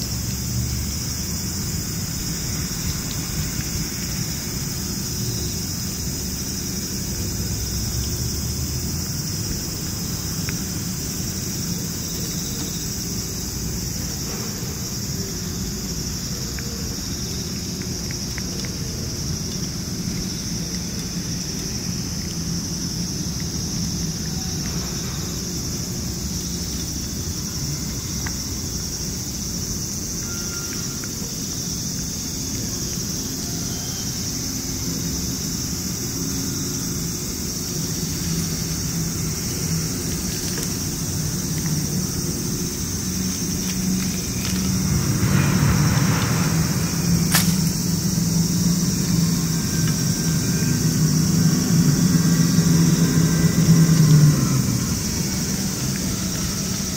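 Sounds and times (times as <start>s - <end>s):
insects droning: 0.0s - 56.9s
vehicle engine humming: 34.5s - 56.9s.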